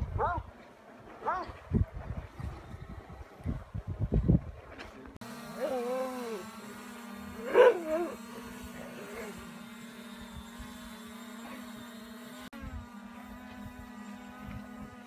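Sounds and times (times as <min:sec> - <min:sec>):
dog barking: 0:01.2 - 0:01.5, 0:07.4 - 0:08.2
drone propellers humming: 0:05.2 - 0:15.0.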